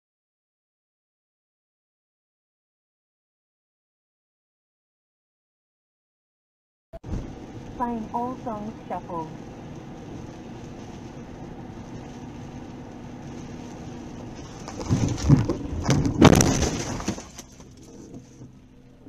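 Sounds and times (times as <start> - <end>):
car cabin road rumble: 7.0 - 19.0
car crash bangs and crunching: 14.2 - 18.1.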